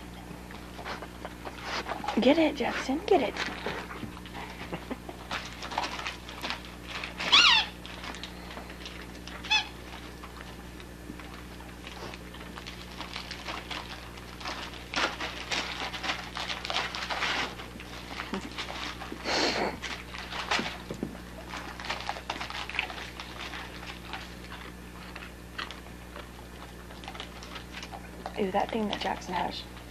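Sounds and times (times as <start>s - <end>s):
wrapping paper tearing and rustling: 0.8s - 29.6s.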